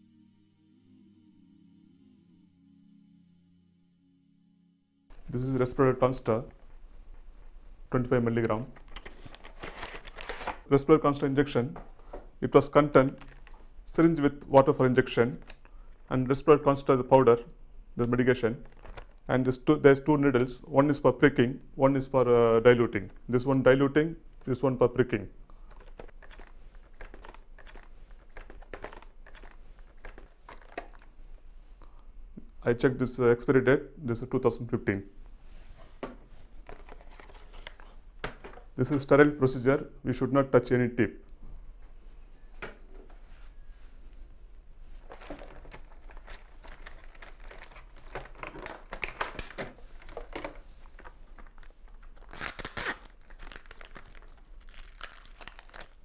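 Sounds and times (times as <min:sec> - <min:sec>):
plastic packaging crinkling: 0:08.6 - 0:10.7, 0:13.2 - 0:13.7, 0:18.6 - 0:19.3, 0:25.6 - 0:31.2, 0:36.6 - 0:38.7, 0:45.0 - 0:56.0.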